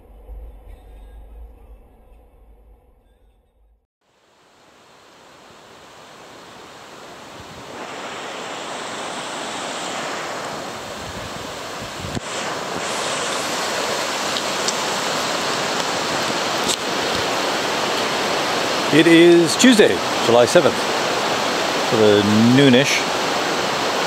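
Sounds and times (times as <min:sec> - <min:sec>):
river rushing over stones: 0:04.1 - 0:24.0.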